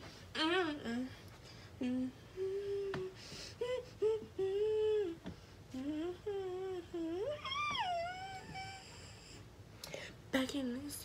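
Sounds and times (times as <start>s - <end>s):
girl humming a tune: 0.4s - 1.2s, 1.8s - 9.5s.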